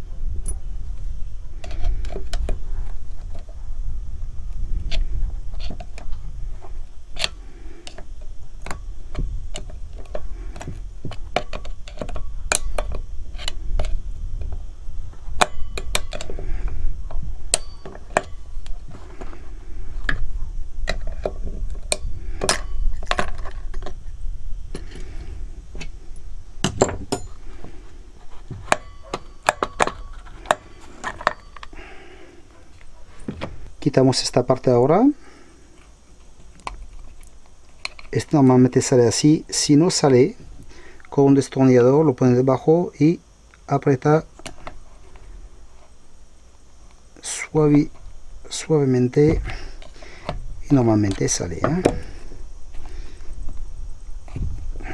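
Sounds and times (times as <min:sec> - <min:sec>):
steady low rumble: 0:00.0 - 0:39.8
metal parts clicking and clinking: 0:09.5 - 0:14.0, 0:15.4 - 0:16.4, 0:28.6 - 0:31.8.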